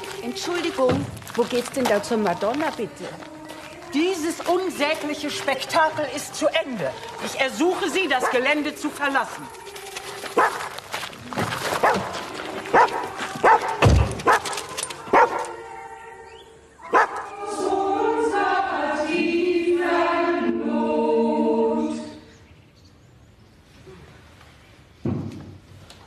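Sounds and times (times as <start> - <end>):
dog barking: 8.2 - 8.5, 10.4 - 10.6, 11.8 - 12.1, 12.7 - 14.5, 15.1 - 15.5, 16.9 - 17.3
choral held chords music: 12.1 - 22.5.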